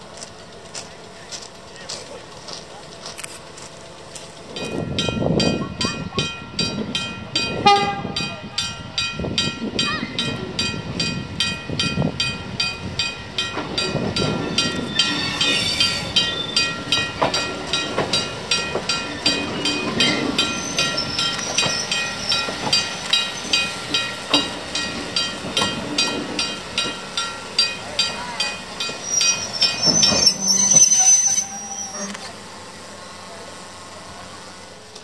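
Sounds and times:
train wheels clicking over rail joints: 0:00.0 - 0:06.0, 0:09.3 - 0:32.4.

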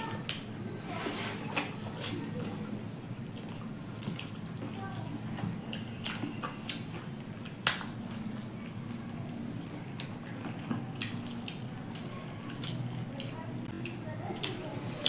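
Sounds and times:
wet chewing and lip smacking: 0:03.2 - 0:15.0.

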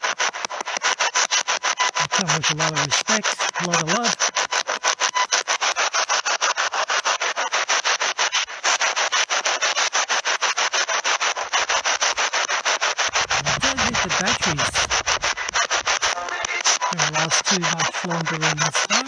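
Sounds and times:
chopped radio static: 0:00.0 - 0:19.0
voice through radio: 0:02.0 - 0:04.4, 0:13.1 - 0:19.0.

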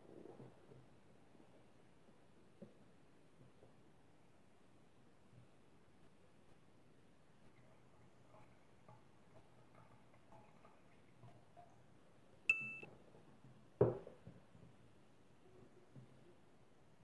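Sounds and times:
bright chime ding: 0:12.5 - 0:12.9.

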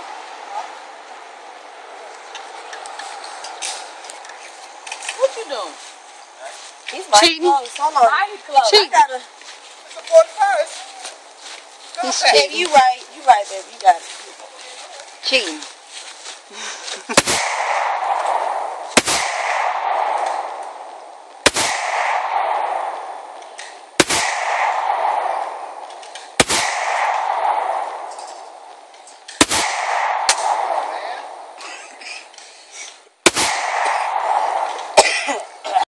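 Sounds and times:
hiss after gunshot: 0:17.1 - 0:25.6, 0:26.2 - 0:28.1, 0:29.4 - 0:31.5, 0:33.2 - 0:35.0
pistol shots: 0:17.2 - 0:28.7, 0:29.3 - 0:31.6, 0:33.2 - 0:35.1.

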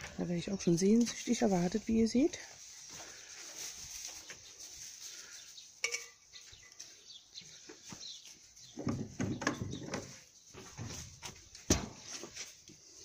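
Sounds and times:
wooden knocks: 0:08.8 - 0:10.1
wooden door and wire mesh rattling: 0:08.8 - 0:12.1.

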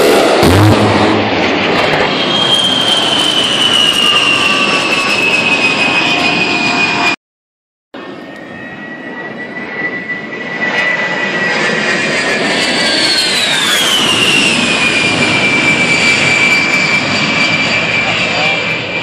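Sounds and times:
jet engines whining: 0:00.0 - 0:07.2, 0:08.0 - 0:19.0
jet rush: 0:00.0 - 0:07.2.

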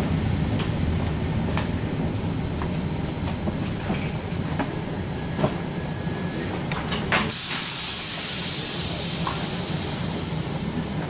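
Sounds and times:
train low rumble: 0:00.0 - 0:11.0
compressed air hissing: 0:07.3 - 0:11.0.

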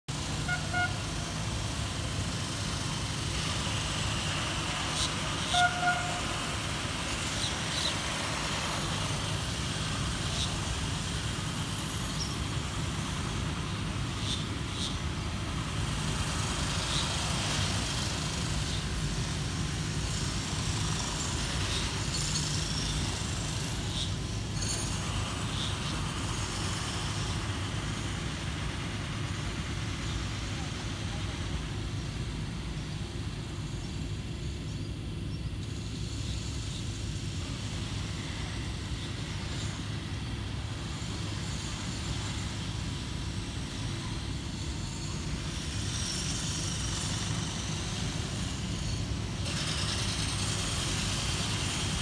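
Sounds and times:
train rumbling through station: 0:00.1 - 0:52.0
train horn blasts: 0:00.2 - 0:01.4, 0:05.3 - 0:06.6.

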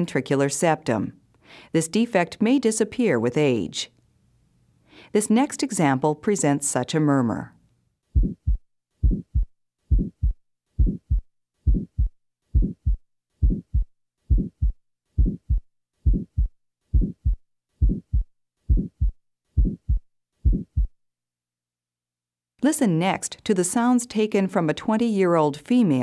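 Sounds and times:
heartbeat with murmur: 0:08.2 - 0:21.0.

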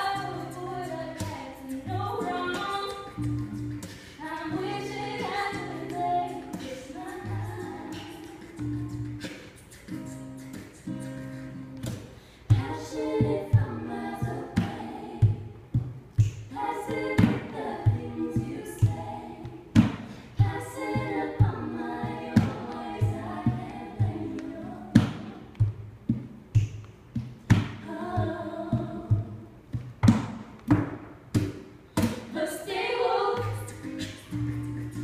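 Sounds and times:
women singing in harmony: 0:00.0 - 0:09.3, 0:12.5 - 0:25.5, 0:27.6 - 0:29.6, 0:32.2 - 0:35.0
acoustic guitars strumming: 0:00.0 - 0:35.0.

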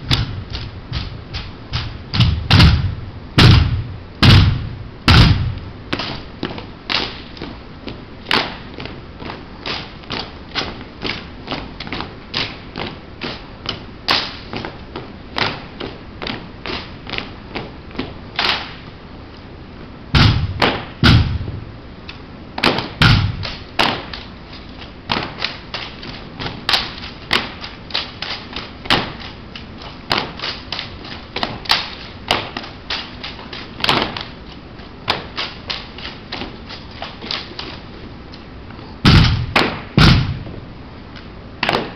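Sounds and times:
boots and hands striking rifles: 0:39.0 - 0:40.6.

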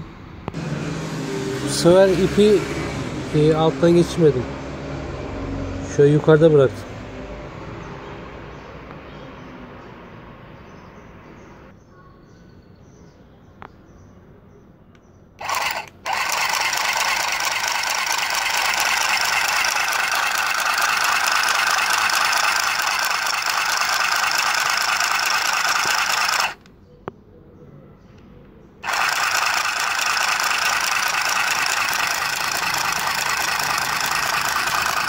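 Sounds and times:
handheld sewing machine whirring: 0:15.4 - 0:26.7, 0:28.8 - 0:35.0.

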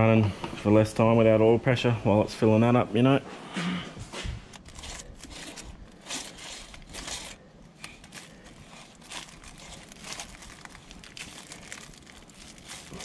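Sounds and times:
rustling and crinkling: 0:04.0 - 0:13.0.

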